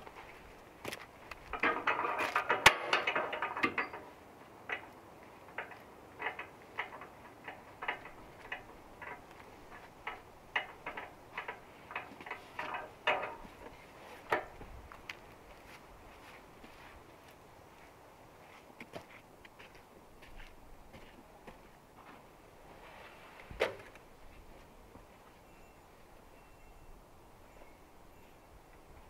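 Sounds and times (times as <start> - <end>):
metal clicks and clanks: 1.3 - 14.6.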